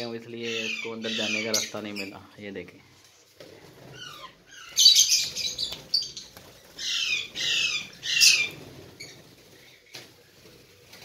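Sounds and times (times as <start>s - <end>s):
lovebirds squawking: 0.0s - 2.2s, 3.8s - 9.5s.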